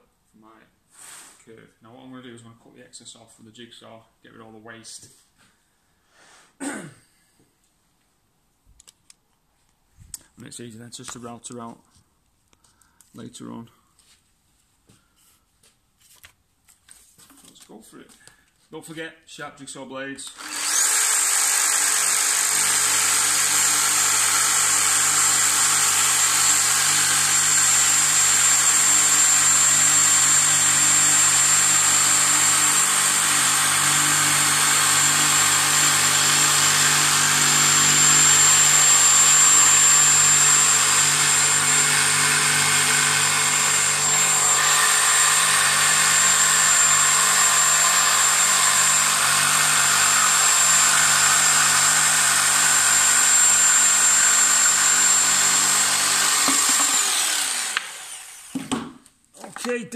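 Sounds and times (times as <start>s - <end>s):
electric jigsaw cutting: 20.2s - 58.8s.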